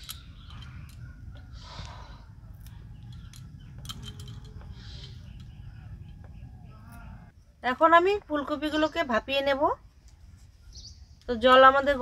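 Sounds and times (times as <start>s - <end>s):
wind rumble on microphone: 0.0s - 7.3s.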